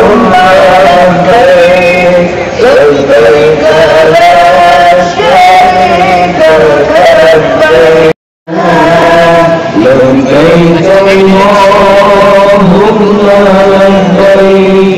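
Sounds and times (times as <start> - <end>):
men singing a devotional chant: 0.0 - 14.9.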